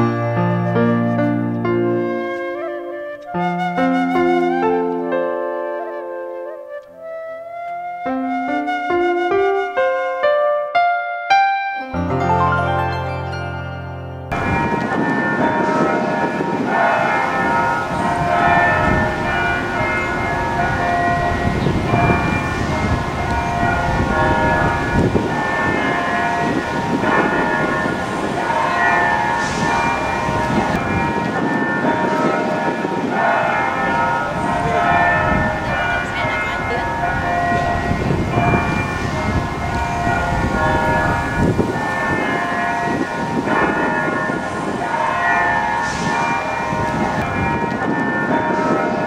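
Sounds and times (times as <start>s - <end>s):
church bells ringing: 0.0s - 0.6s, 11.4s - 49.0s
low rumbling noise: 13.9s - 49.0s.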